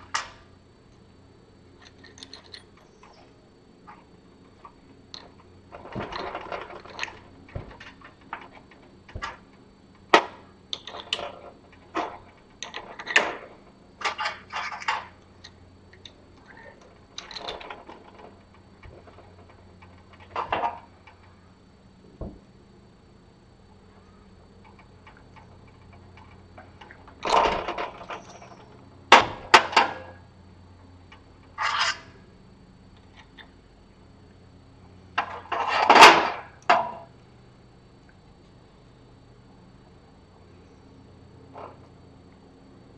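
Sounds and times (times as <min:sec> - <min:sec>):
metal parts clicking and clinking: 0:01.8 - 0:03.3, 0:03.9 - 0:21.3, 0:31.4 - 0:32.1.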